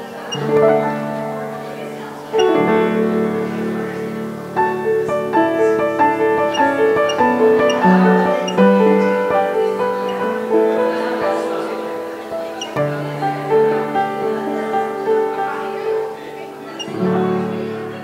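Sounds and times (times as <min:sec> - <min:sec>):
slow piano melody: 0:00.0 - 0:18.0.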